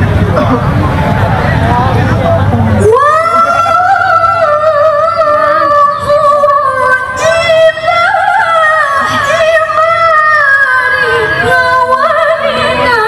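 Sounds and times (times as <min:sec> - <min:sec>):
woman chanting through a microphone: 0:01.7 - 0:13.0.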